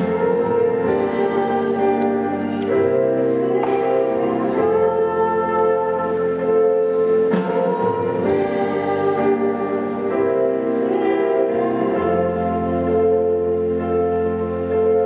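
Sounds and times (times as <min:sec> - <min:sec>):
girl singing into microphone: 0:00.0 - 0:13.4
live instrumental accompaniment: 0:00.0 - 0:15.0.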